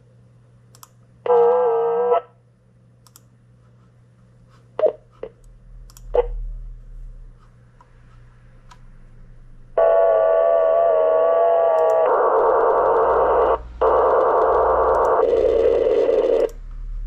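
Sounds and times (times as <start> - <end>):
sharp clicks: 0.7 - 1.0, 3.0 - 3.3, 5.4 - 6.2, 11.8 - 13.1, 13.8 - 15.3
radio receiver hum and hiss: 1.3 - 2.4, 4.7 - 17.0
steady buzzing tone: 9.4 - 17.0.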